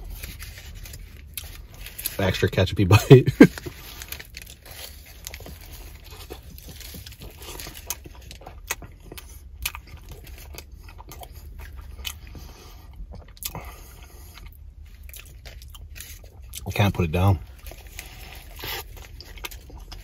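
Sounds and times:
low steady hum: 0.0 - 20.0
mouth chewing clicks and smacks: 6.2 - 12.4.

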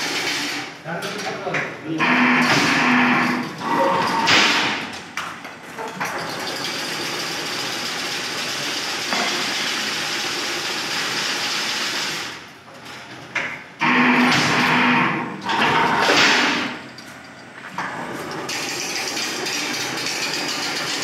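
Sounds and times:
weaving machine whirring: 18.2 - 21.0.

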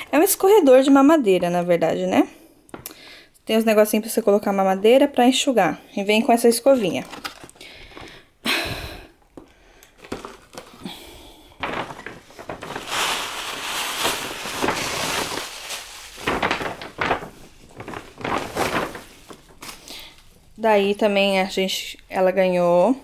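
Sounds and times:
packaging rustling and crinkling: 6.7 - 8.2, 9.8 - 21.0.

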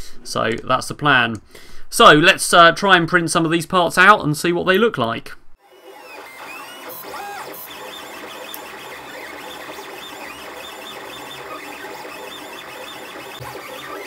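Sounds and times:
stepper motors whirring: 5.6 - 14.0.

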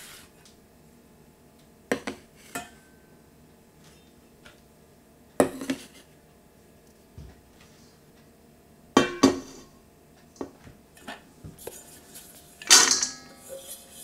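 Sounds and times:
metal bowl clanking on table: 12.6 - 13.6.

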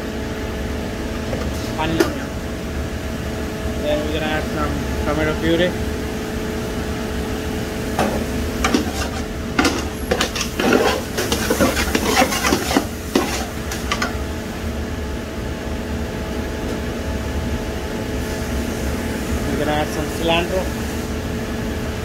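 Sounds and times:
steady mechanical hum: 0.0 - 22.0
metal spatula scraping a pot: 8.1 - 14.1.

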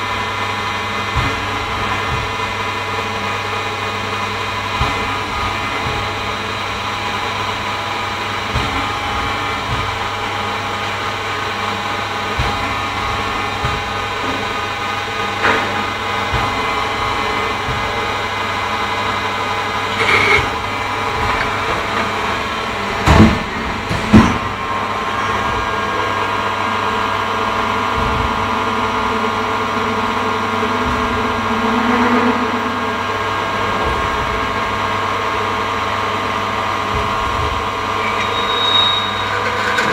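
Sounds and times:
machinery humming: 0.0 - 39.9
steady machine tones: 24.5 - 39.9.

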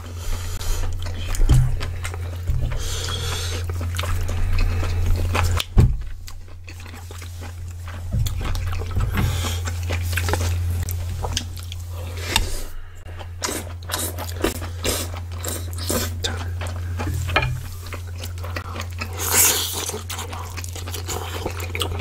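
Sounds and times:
low hum: 0.0 - 19.2
close chewing and biting: 0.0 - 22.0.

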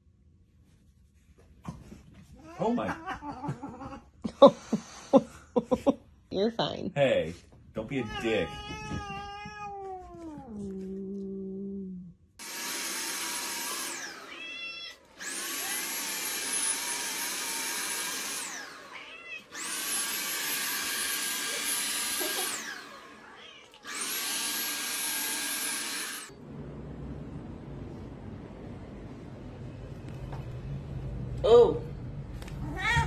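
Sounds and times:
cat yowling: 8.0 - 11.2, 14.1 - 15.0, 18.8 - 19.8, 22.4 - 24.5, 32.6 - 33.0
cat meowing: 8.0 - 11.4, 14.2 - 15.0, 18.8 - 19.6, 23.2 - 24.1, 32.6 - 33.0
vacuum cleaner motor whining: 12.4 - 26.4.

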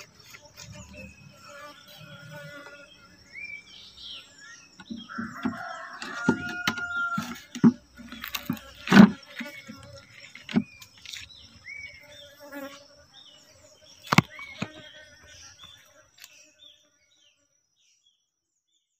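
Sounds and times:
small birds chirping: 0.0 - 18.9
wood knocking on wood: 4.8 - 9.6.

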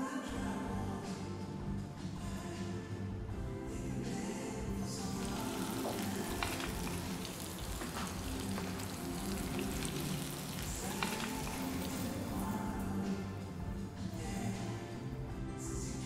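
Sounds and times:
meat sizzling in a frying pan: 5.1 - 12.7.

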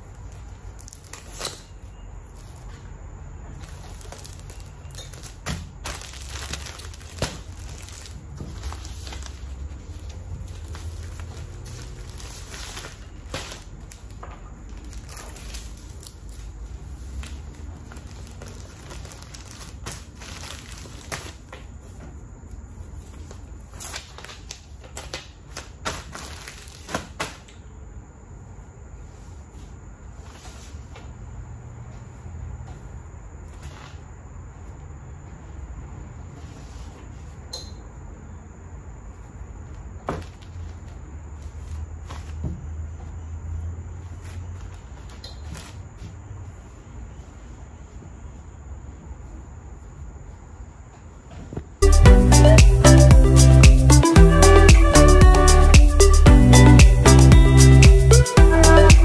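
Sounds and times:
room hum: 0.0 - 59.0
plastic packaging crinkling: 3.5 - 21.8, 23.3 - 27.2.

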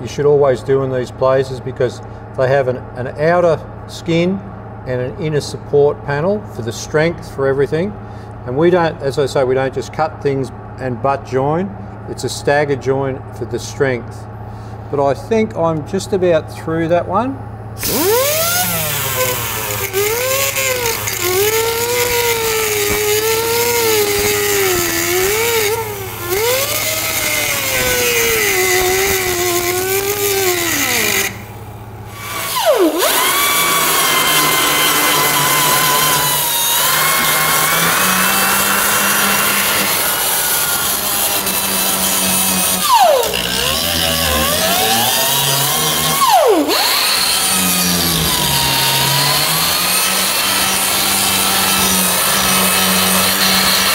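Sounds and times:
power tool cutting sheet metal: 17.8 - 53.9.

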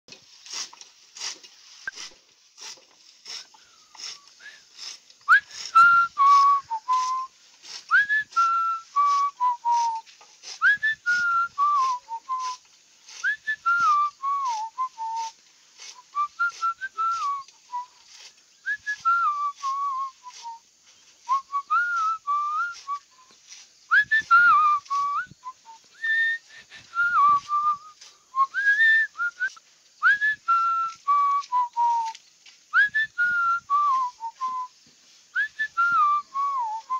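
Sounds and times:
fodder cutter chopping grass: 0.1 - 17.4
person whistling a tune: 3.6 - 4.7, 5.3 - 7.3, 7.9 - 18.0, 18.6 - 23.3, 23.9 - 36.9.

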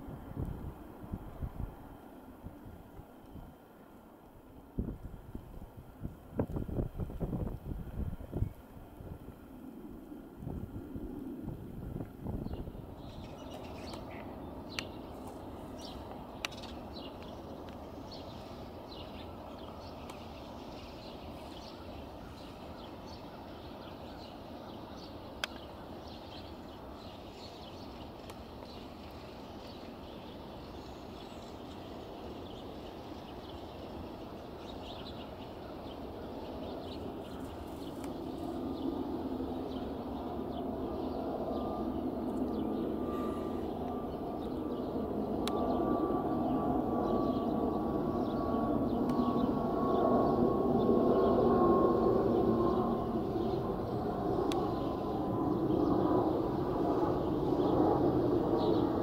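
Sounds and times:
jet climbing after takeoff: 0.0 - 59.0
small birds chirping: 12.4 - 50.4.

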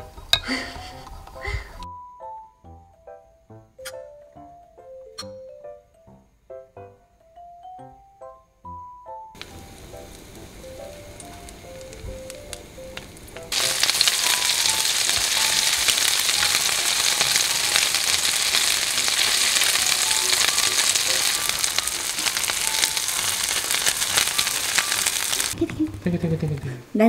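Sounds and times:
fish sizzling in hot oil: 9.4 - 25.6.

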